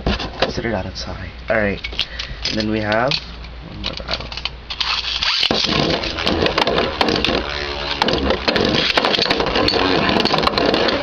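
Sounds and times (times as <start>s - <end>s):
spinning tops whirring rattle: 4.7s - 11.0s.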